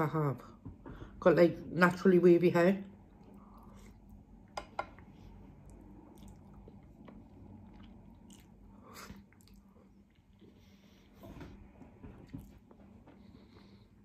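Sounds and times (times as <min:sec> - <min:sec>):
chewing and slurping noodles: 0:05.1 - 0:10.8.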